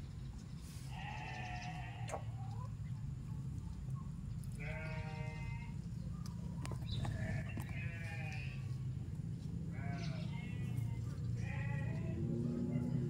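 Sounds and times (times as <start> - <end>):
goat bleating: 0.9 - 2.4, 4.6 - 5.8, 7.1 - 8.8, 9.7 - 13.0.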